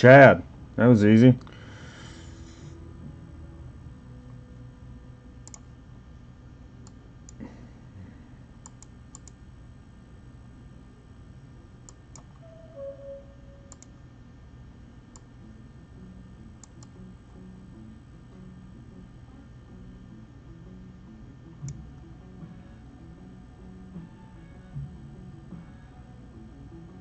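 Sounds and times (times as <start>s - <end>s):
low room hum: 0.0s - 27.0s
computer mouse clicks: 5.4s - 5.7s, 8.6s - 9.4s, 11.8s - 12.4s, 13.7s - 13.9s, 16.6s - 17.0s
falling two-note tone: 12.4s - 13.7s.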